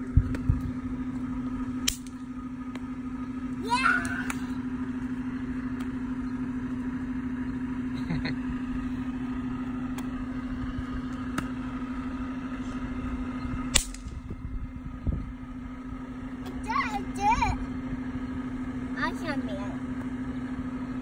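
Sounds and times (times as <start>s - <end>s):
low mechanical drone: 0.0s - 21.0s
snap pops cracking on asphalt: 0.2s - 0.7s, 1.8s - 3.0s, 4.0s - 4.5s, 5.7s - 6.0s, 9.9s - 10.2s, 11.0s - 11.7s, 13.7s - 14.4s.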